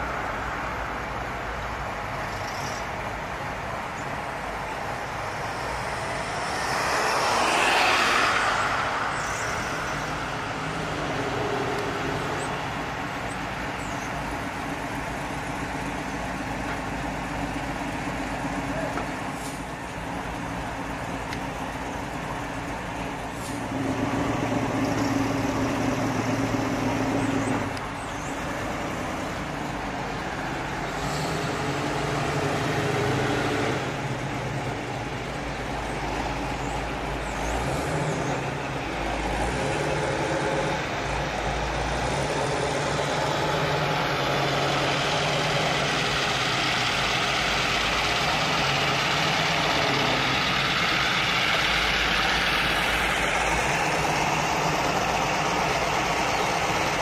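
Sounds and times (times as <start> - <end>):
cars driving slowly past: 0.0 - 57.0.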